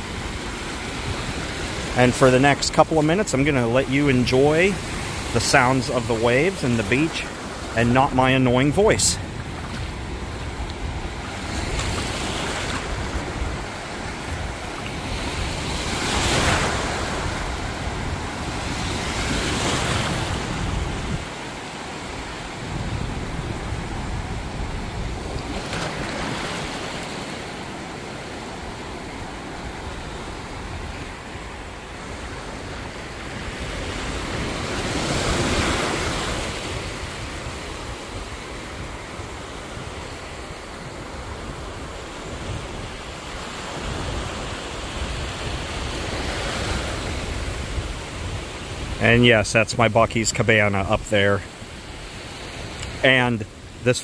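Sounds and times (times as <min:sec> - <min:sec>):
ocean surf washing in: 0:00.0 - 0:54.0
wind rumble on microphone: 0:09.1 - 0:26.4, 0:29.6 - 0:49.3.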